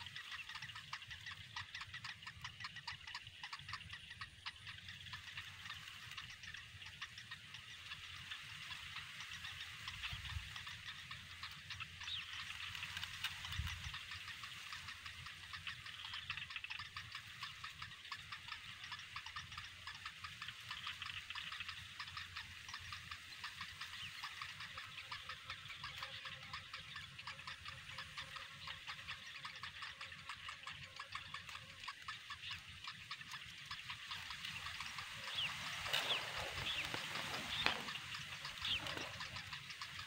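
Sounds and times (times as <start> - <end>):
nestlings ticking chatter: 0.0 - 40.0
squeaky bird calls: 32.4 - 40.0.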